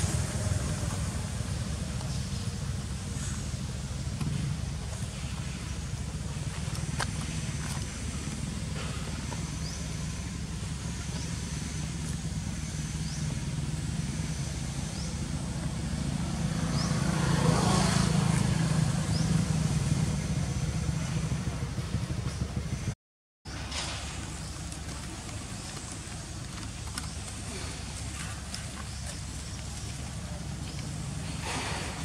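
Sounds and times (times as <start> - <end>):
distant traffic rumble: 0.0 - 32.0
vehicle passing: 12.7 - 22.9.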